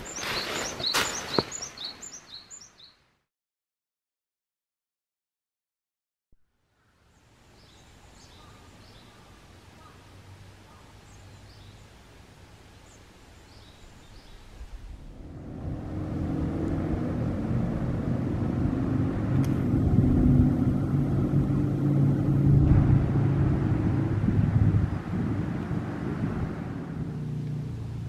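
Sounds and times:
vehicle engine low hum: 14.8s - 28.0s.

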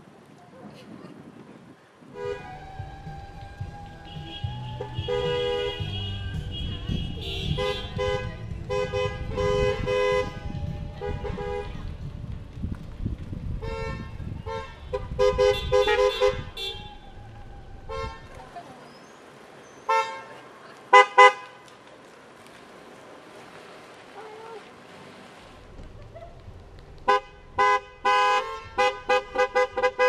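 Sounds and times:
engine and tyre rumble: 0.0s - 30.0s
car horns honking: 2.1s - 3.2s, 3.9s - 11.8s, 13.6s - 17.2s, 17.9s - 18.6s, 19.8s - 21.6s, 27.1s - 30.0s.

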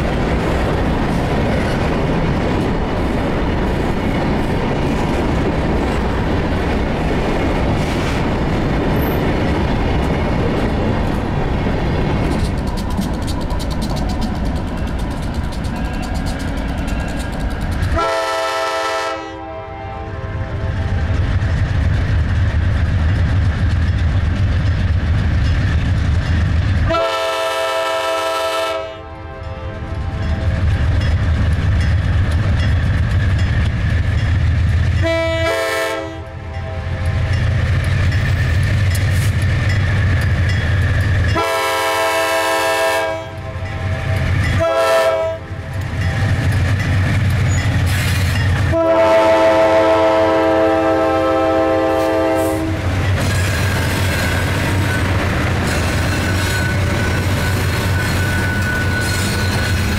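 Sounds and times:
locomotive horn blasts: 17.9s - 20.9s, 26.9s - 30.2s, 35.0s - 37.1s, 41.3s - 43.7s, 44.6s - 45.6s, 48.7s - 52.8s.

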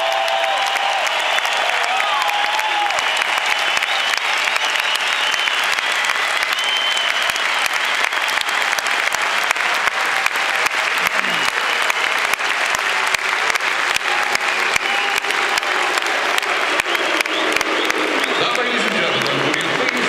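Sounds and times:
crowd applauding: 0.0s - 20.0s
voices in crowd: 0.8s - 20.0s.

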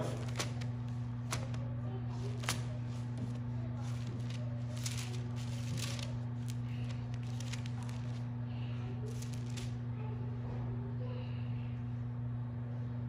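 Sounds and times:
book pages rustling: 0.0s - 8.3s, 9.1s - 9.8s
low electrical hum: 0.0s - 13.0s.

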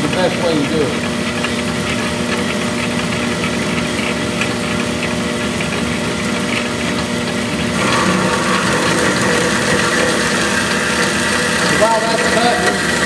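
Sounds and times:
machine hum: 0.0s - 13.0s
bandsaw cutting steel: 7.7s - 13.0s.

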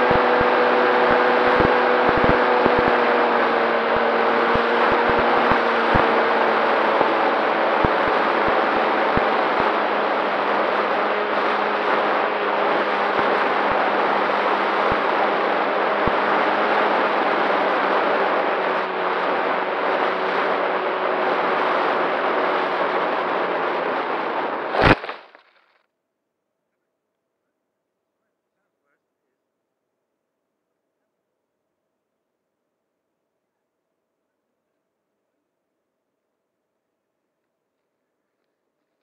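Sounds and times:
drone motors whining: 0.0s - 25.4s
thump landing in grass: 24.8s - 25.5s.

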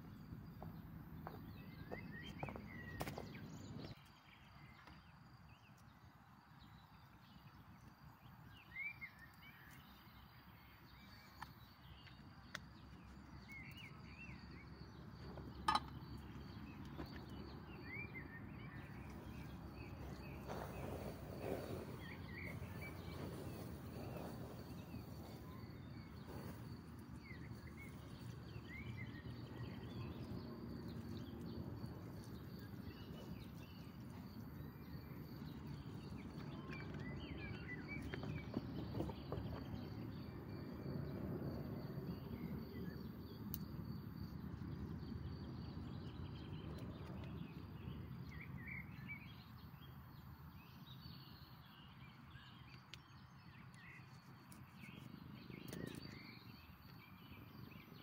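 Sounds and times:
bird chirping: 6.6s - 41.0s, 41.6s - 58.0s
low rumbling noise: 14.8s - 33.8s.

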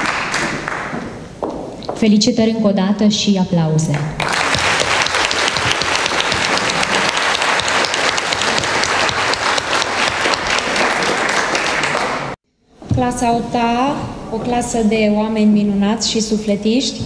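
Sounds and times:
audience applauding: 0.0s - 1.1s, 4.2s - 12.4s.

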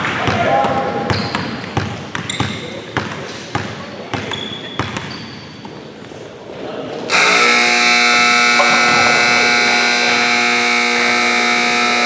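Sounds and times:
scoreboard horn blast: 7.1s - 12.0s.

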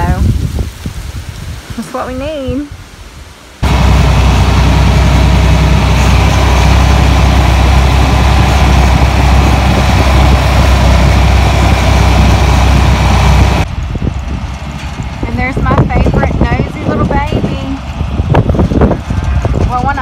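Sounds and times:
tractor engine droning: 3.6s - 20.0s.

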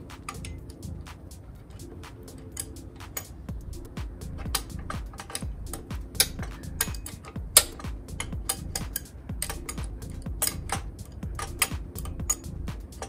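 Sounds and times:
background music with steady beat: 0.0s - 13.0s
metal tools clicking and clinking: 4.4s - 13.0s.

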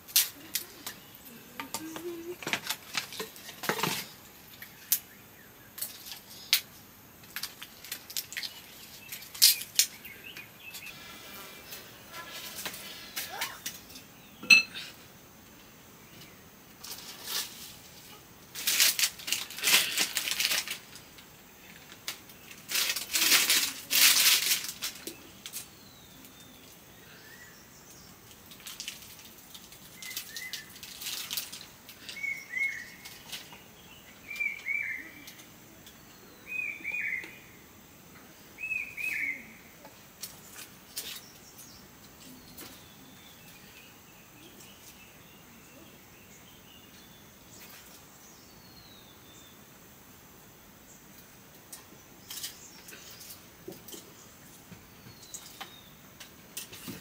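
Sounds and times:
rustling noise: 5.8s - 13.9s, 16.7s - 25.8s, 28.2s - 33.7s.

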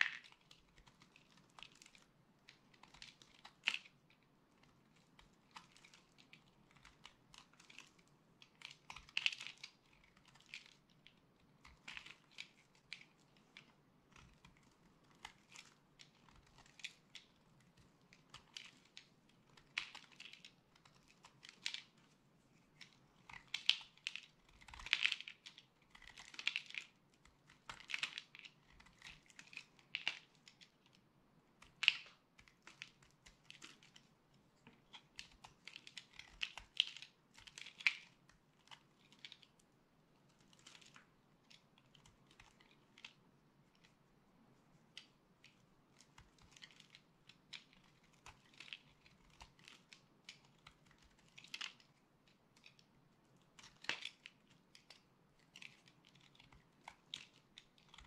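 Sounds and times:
knife scraping brittle soap: 22.7s - 26.5s.

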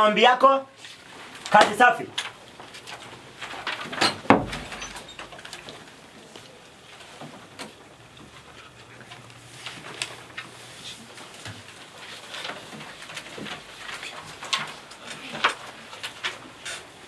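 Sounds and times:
paper rustling: 0.8s - 17.0s
clicks and knocks from desks: 1.3s - 10.6s, 11.2s - 17.0s.

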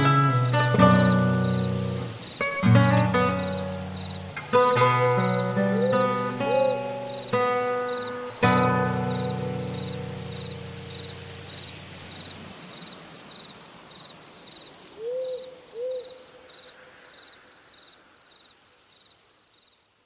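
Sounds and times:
acoustic guitar chord: 0.0s - 11.6s
crickets chirping: 0.0s - 20.0s
owl hooting: 4.6s - 7.3s, 15.0s - 16.6s.

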